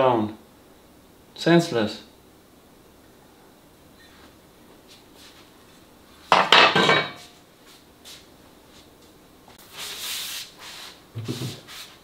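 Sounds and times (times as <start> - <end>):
soft hissing rustle: 3.4 - 6.3, 7.2 - 12.0.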